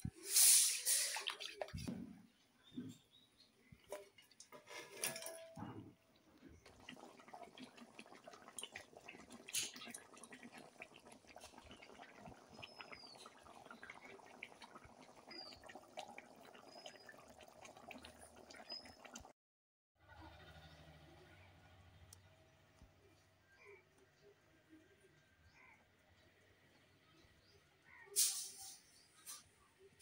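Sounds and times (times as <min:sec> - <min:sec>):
curry bubbling in a wok: 0:06.6 - 0:19.3.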